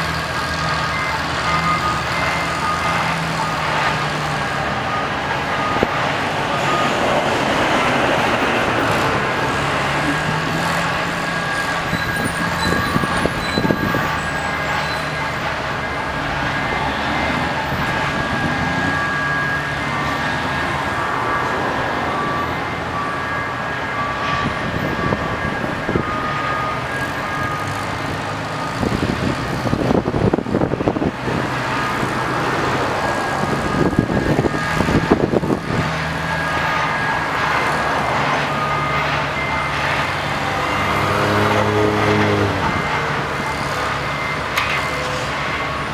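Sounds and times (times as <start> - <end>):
crane engine running: 0.0 - 45.9
backup alarm beeping: 0.3 - 27.8.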